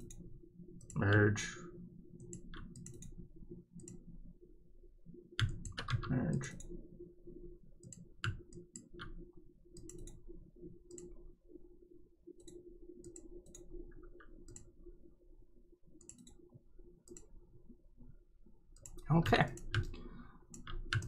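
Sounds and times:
computer mouse clicks: 0.0s - 1.3s, 2.2s - 3.2s, 3.8s - 4.1s, 5.4s - 6.8s, 7.8s - 10.3s, 10.9s - 11.2s, 12.4s - 14.7s, 16.0s - 17.3s, 18.7s - 21.0s
faint steady hum: 0.0s - 21.0s.

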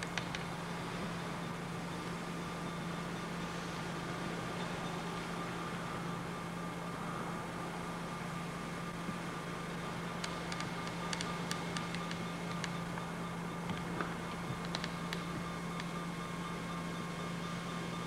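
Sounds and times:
steady low hum with hiss: 0.0s - 18.0s
small clicks: 10.2s - 12.8s, 14.6s - 15.9s.

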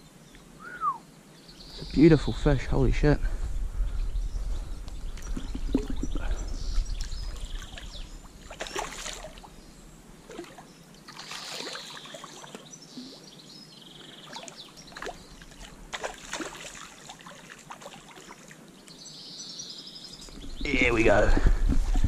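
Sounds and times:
stream water trickling: 5.0s - 21.2s
sharp splashes of fish: 8.5s - 9.5s, 10.3s - 12.6s, 14.4s - 18.6s.

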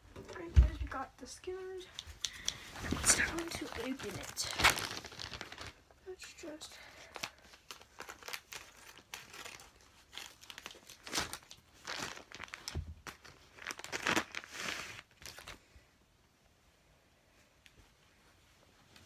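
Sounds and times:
plastic bag crinkling and tearing: 2.8s - 15.6s.

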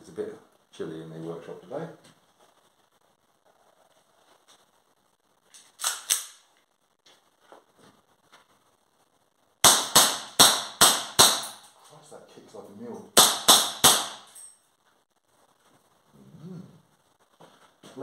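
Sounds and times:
airsoft pistol shots: 9.6s - 11.6s, 13.2s - 14.3s.

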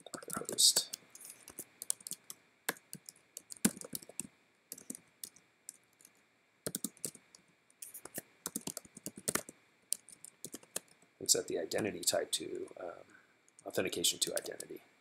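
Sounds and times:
typing on computer keyboard: 0.0s - 5.4s, 6.7s - 7.2s, 7.8s - 11.0s, 14.3s - 14.6s.

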